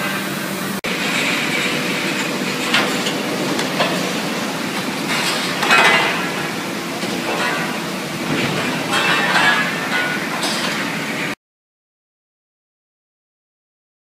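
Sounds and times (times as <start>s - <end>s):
mill machine running: 0.0s - 11.4s
machine knocks: 2.1s - 10.8s.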